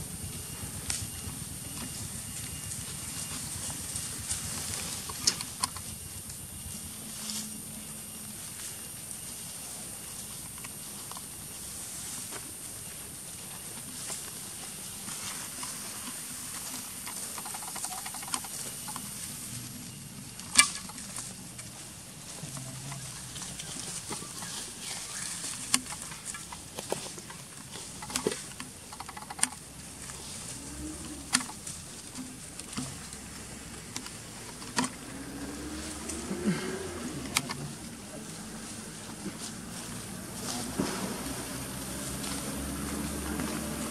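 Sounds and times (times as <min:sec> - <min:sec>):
steady high hiss: 0:00.0 - 0:43.9
small clicks and rustles: 0:00.1 - 0:43.9.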